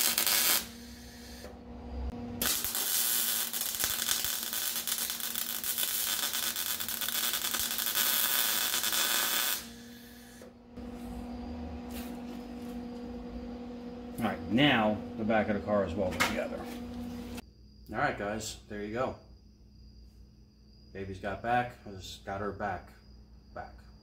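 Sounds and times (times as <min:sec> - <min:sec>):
welder arc crackling: 0:00.0 - 0:17.4.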